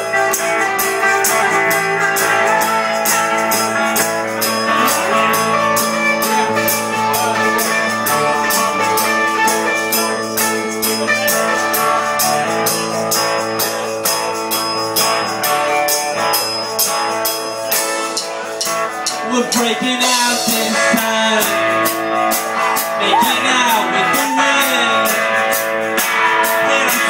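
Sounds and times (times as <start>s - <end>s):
drum kit beat: 0.0s - 27.0s
electric guitars and bass: 0.0s - 27.0s.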